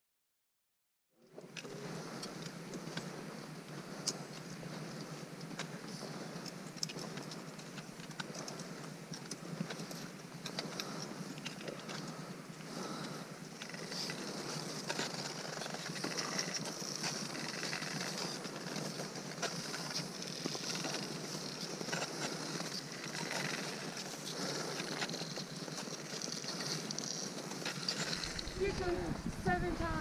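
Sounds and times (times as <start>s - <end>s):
footsteps crunching on snow: 13.8s - 30.0s.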